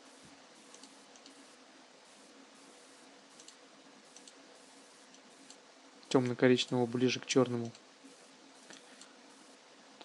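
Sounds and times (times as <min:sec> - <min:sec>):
low steady hiss: 0:00.0 - 0:10.0
computer mouse clicks: 0:00.7 - 0:01.4, 0:03.4 - 0:04.4, 0:07.6 - 0:07.9.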